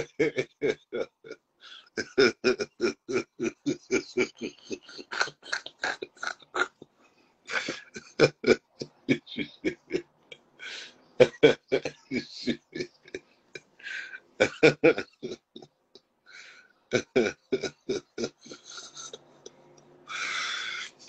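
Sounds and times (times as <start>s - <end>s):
man laughing: 0.0s - 6.8s, 7.5s - 10.1s, 10.7s - 15.7s, 16.9s - 21.0s
breathy intake: 1.6s - 2.0s, 10.6s - 11.0s, 13.8s - 14.2s, 16.3s - 16.7s, 20.1s - 21.0s.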